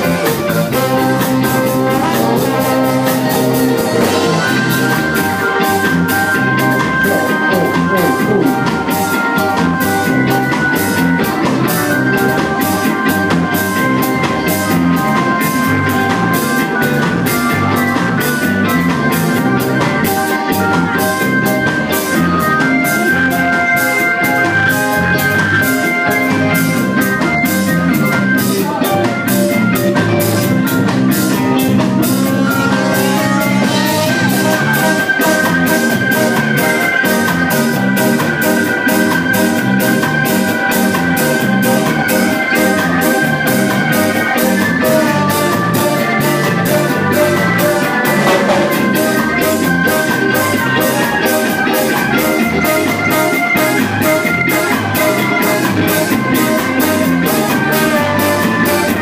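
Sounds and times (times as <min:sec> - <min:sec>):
horn section holding notes: 0:00.0 - 0:17.8, 0:31.3 - 0:59.0
drums: 0:00.0 - 0:59.0
guitar: 0:00.0 - 0:59.0.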